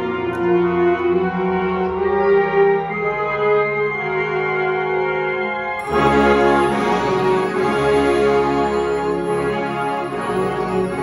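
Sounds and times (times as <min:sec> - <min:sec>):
concert band playing chords: 0:05.8 - 0:11.0.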